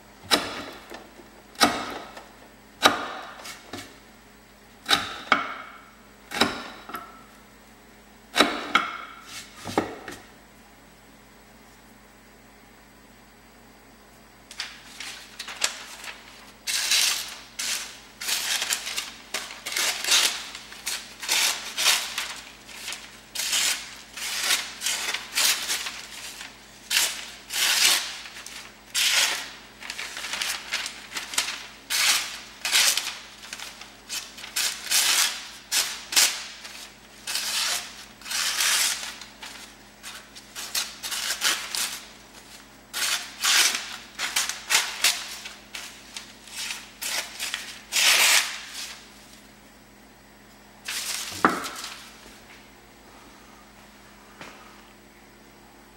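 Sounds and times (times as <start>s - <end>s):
knife slicing paper: 14.5s - 49.0s
pages rustling: 14.5s - 49.4s.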